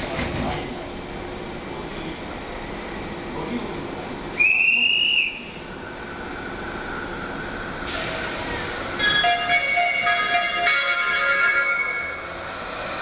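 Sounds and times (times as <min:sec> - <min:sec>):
approaching train rushing hiss: 0:04.3 - 0:13.0
shrill whistle blast: 0:04.4 - 0:05.5.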